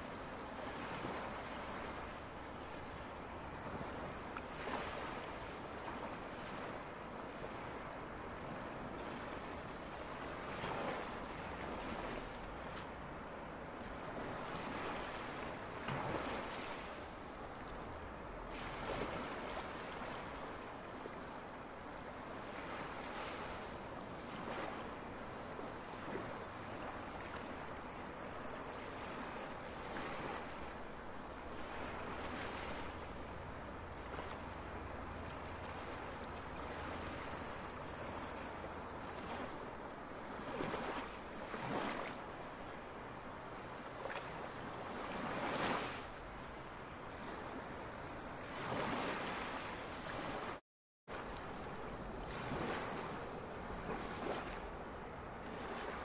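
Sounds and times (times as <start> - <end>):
waves breaking on shore: 0.0 - 56.0.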